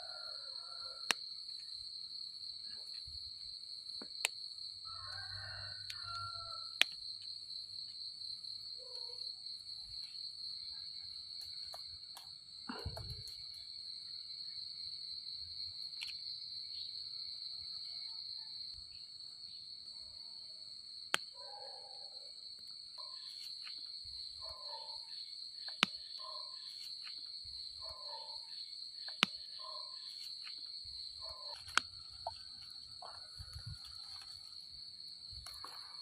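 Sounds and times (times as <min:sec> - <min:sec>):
high-pitched insect chorus: 0:00.0 - 0:36.0.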